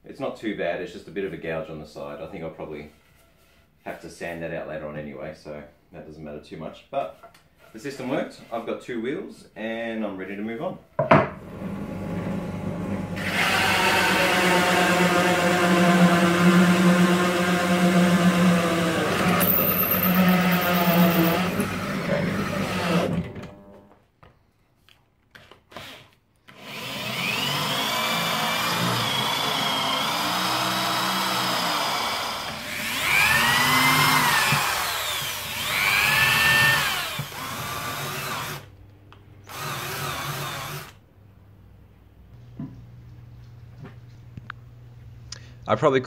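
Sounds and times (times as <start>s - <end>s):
drill press running: 11.4s - 23.7s, 26.6s - 38.7s
cordless drill driving screw: 13.2s - 23.2s, 25.7s - 38.7s, 39.4s - 41.0s
hand drill boring into wood: 13.2s - 23.3s, 25.7s - 38.7s, 39.4s - 41.0s.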